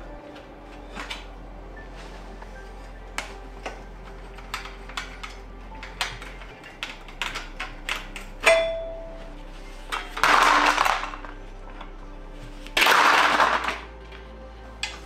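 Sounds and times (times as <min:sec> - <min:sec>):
metal tools clicking and tapping: 0:03.2 - 0:09.0.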